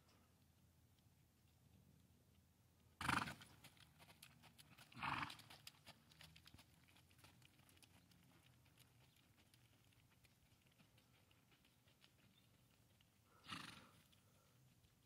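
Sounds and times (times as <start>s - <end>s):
horse hoofbeats on dirt: 3.0s - 15.0s.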